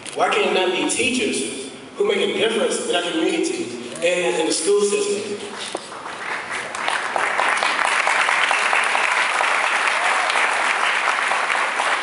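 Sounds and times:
audience applause: 5.5s - 12.0s.

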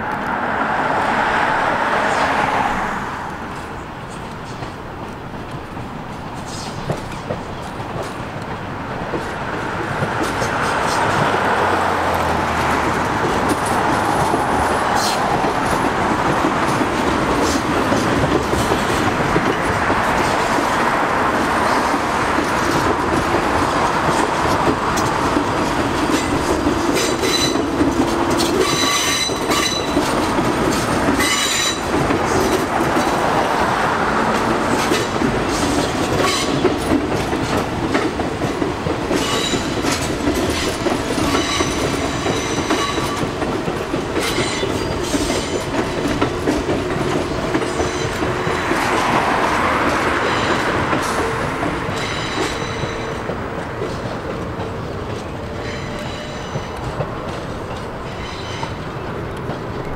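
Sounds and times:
car passing: 0.0s - 4.0s, 8.7s - 42.7s, 44.8s - 55.6s
train wheels rumbling on rails: 0.0s - 59.9s
clickety-clack over rail joints: 0.1s - 59.9s
high thin wheel squeal: 28.4s - 30.0s.

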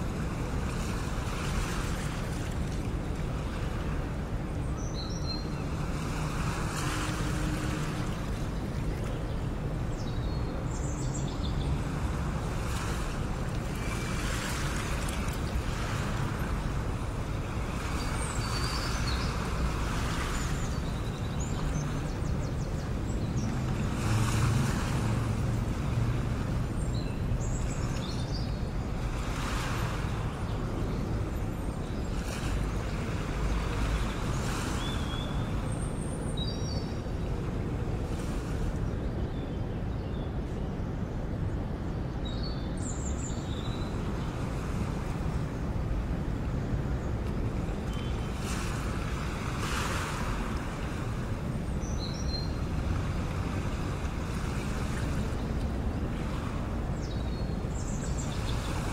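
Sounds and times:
waves washing in: 0.0s - 58.9s.

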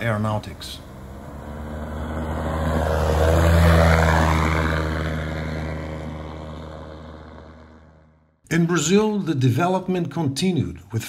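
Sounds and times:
light aircraft flying past: 0.5s - 8.2s.

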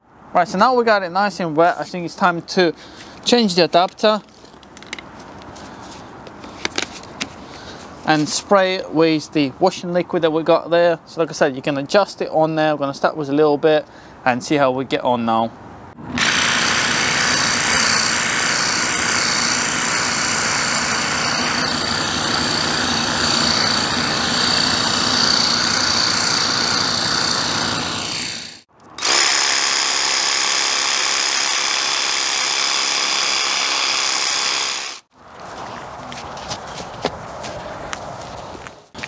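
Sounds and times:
pressure washer pump whine: 16.1s - 35.1s.

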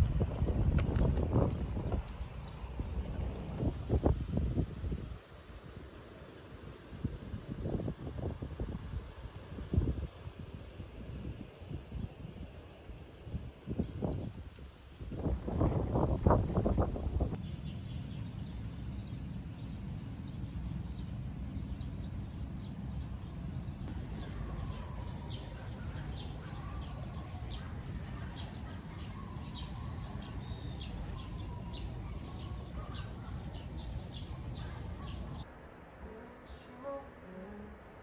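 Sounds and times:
birds chirping: 23.5s - 35.4s
high insect drone: 23.9s - 35.4s.

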